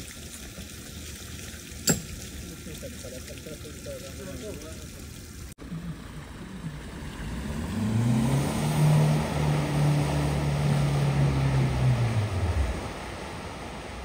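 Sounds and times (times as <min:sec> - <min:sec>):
water rushing and splashing: 0:00.0 - 0:14.0
vehicle engine: 0:05.6 - 0:14.0.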